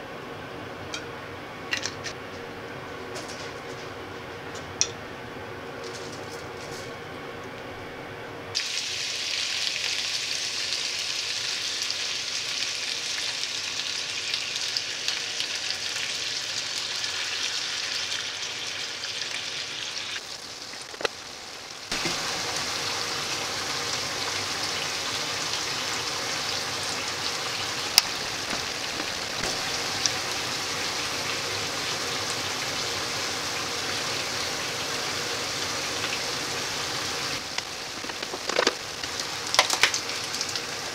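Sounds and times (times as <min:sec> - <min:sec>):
vegetables sizzling in oil: 0:08.6 - 0:40.9.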